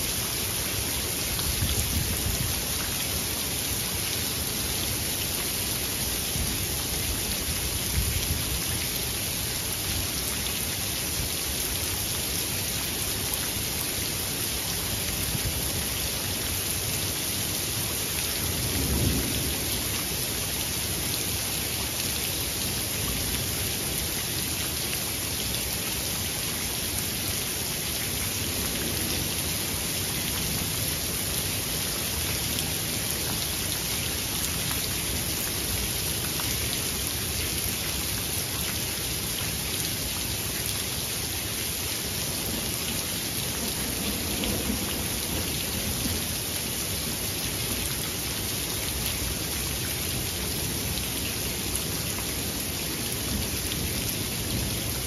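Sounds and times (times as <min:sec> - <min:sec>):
steady rain falling: 0:00.0 - 0:55.0
low rumble of thunder: 0:18.6 - 0:19.9, 0:43.6 - 0:46.2.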